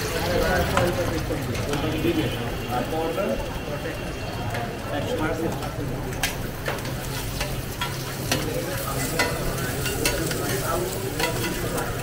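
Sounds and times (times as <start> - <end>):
eggs sizzling on a griddle: 0.0 - 3.4, 4.1 - 12.0
metal spatula scraping a griddle: 6.2 - 12.0.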